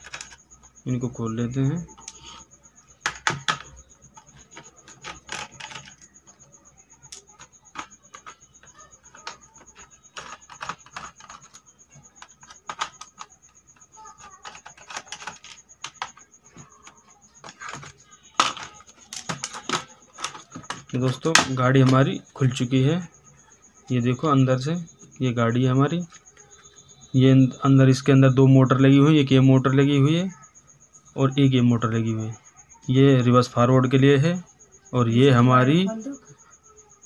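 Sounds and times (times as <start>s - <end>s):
plastic shell being handled: 1.8s - 22.3s.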